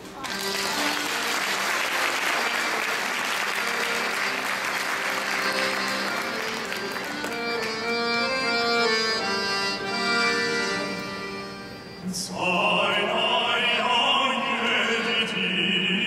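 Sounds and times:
audience applause: 0.1 - 8.2
accordion playing held chords: 0.3 - 12.2.

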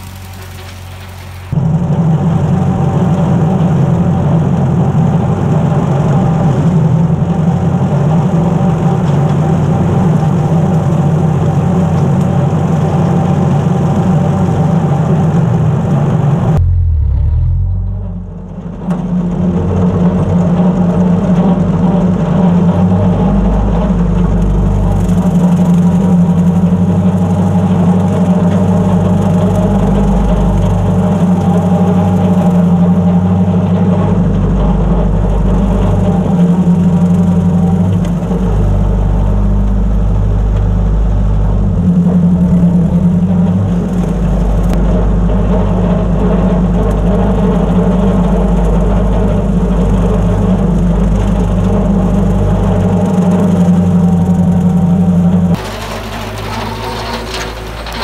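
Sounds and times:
mower cutting tall grass: 0.0 - 1.6, 21.3 - 58.0
tractor engine running under load: 0.0 - 58.0.

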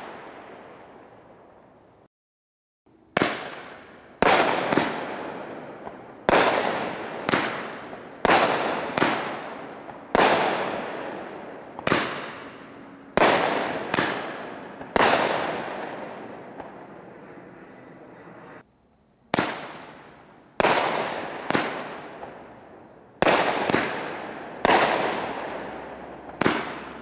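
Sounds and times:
firework bangs with echo: 3.1 - 17.1, 19.3 - 22.5, 23.2 - 27.0.

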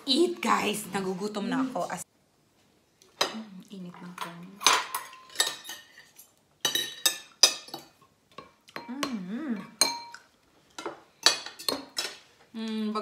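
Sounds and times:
cutlery clinking on plates: 4.2 - 12.3.

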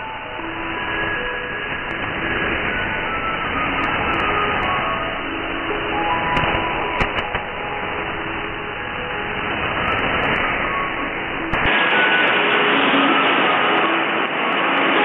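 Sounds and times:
radio hiss and static: 0.0 - 15.0
radio clicks: 6.4 - 7.5.

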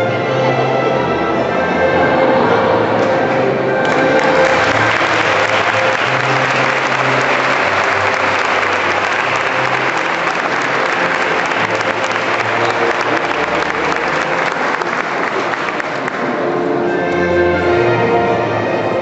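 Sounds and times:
faint music: 0.0 - 19.0
audience clapping: 3.8 - 16.7.

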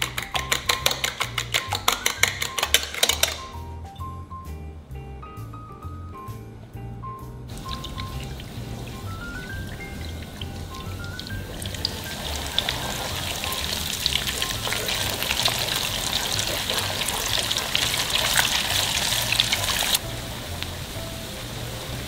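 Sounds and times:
wooden spatula stirring: 0.0 - 3.4
light background music: 0.0 - 22.0
egg sizzling in hot oil: 7.5 - 22.0.

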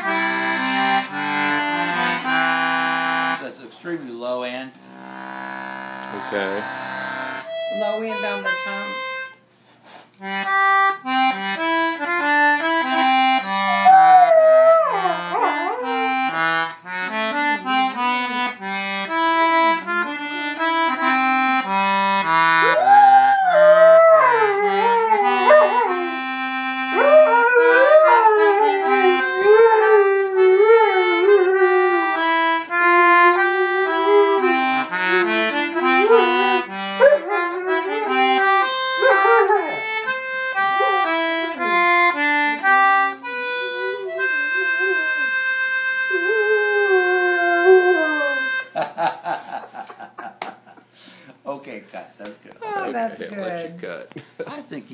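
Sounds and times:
concertina playing low tune: 0.0 - 3.5, 4.8 - 9.5, 10.2 - 48.7
dog howling: 13.7 - 16.3, 22.6 - 26.2, 26.9 - 32.2, 33.0 - 38.4, 39.0 - 39.9, 40.7 - 41.2, 43.6 - 45.3, 46.1 - 48.6.

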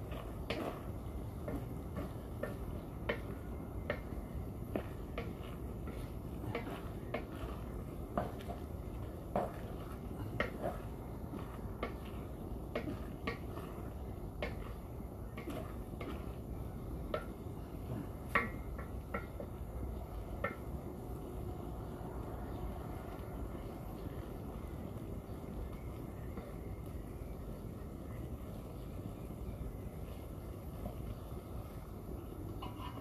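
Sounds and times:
low steady rumble: 0.0 - 33.0
spatula scraping a metal pan: 4.8 - 8.7, 32.6 - 33.0.

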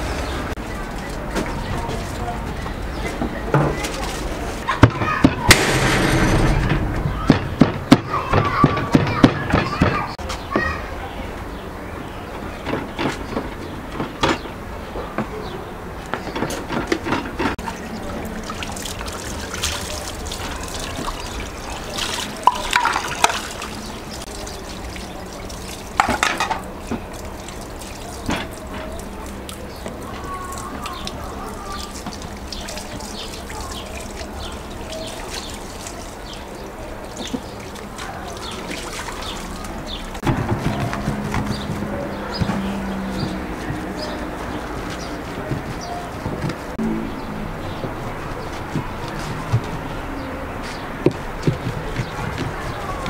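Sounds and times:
wet squelching of mince: 17.6 - 40.2.

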